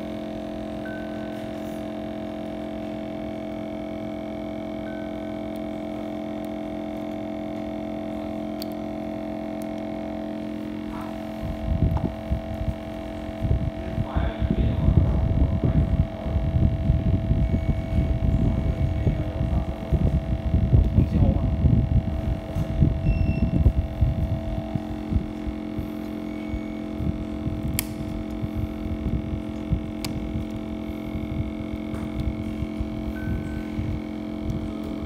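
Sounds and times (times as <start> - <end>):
electrical hum: 0.0 - 35.0
low rumbling noise: 0.0 - 35.0
sharp clicks: 27.7 - 28.4.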